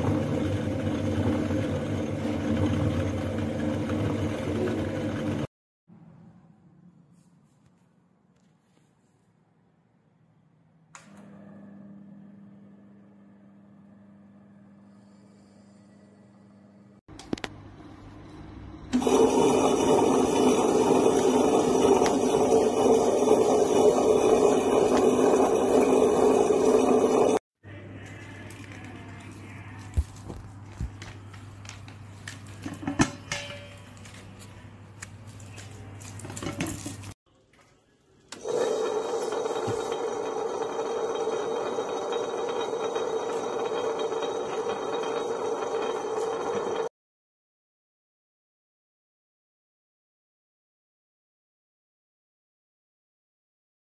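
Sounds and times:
wet grinder grinding: 0.0s - 5.5s, 19.0s - 27.4s, 38.3s - 46.9s
scraping rattle of grinder drum: 38.8s - 46.9s.

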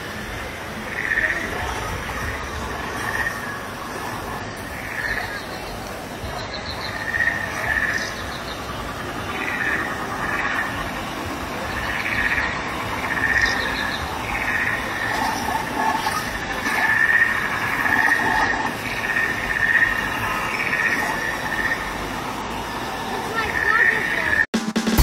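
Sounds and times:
waterfall rushing into pond: 0.0s - 25.0s.

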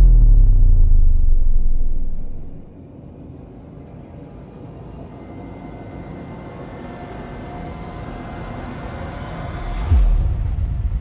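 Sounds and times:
low rumble and whoosh riser: 0.0s - 2.8s.

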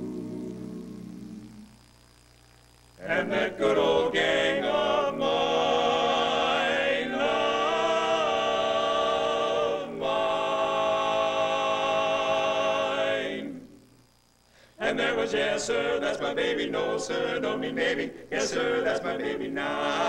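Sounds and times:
male quartet singing a cappella: 0.0s - 1.7s, 3.0s - 13.8s, 14.8s - 20.0s.

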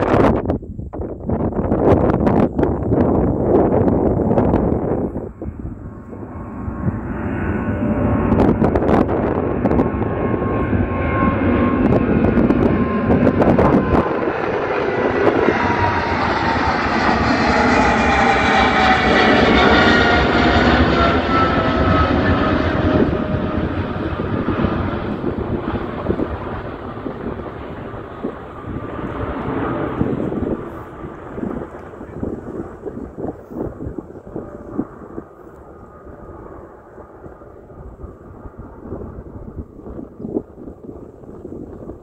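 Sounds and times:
jet engine roar: 0.0s - 42.0s
whining tones sliding down: 5.5s - 30.9s.

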